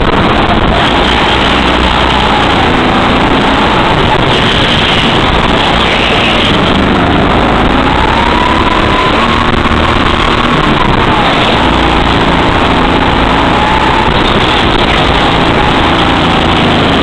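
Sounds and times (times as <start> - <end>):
go-kart engine whining: 0.0 - 17.0.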